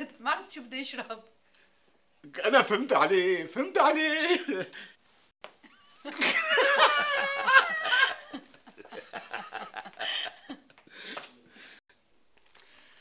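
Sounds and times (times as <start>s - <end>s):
man and woman laughing: 5.6s - 11.4s.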